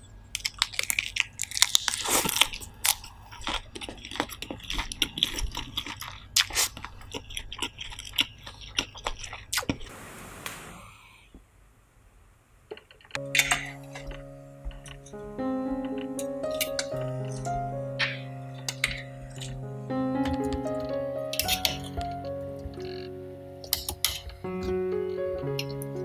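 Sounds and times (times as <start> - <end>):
crunchy chewing: 0.3 - 9.9
short hiss: 9.9 - 11.4.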